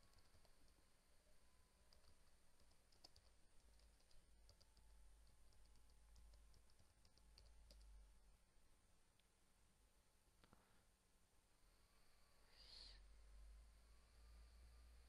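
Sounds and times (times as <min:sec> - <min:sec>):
keyboard typing: 0:00.0 - 0:00.8, 0:01.9 - 0:08.0.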